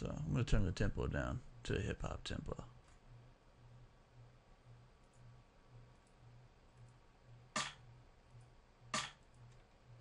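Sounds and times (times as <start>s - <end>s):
drum machine clap: 7.5s - 7.9s, 8.9s - 9.2s.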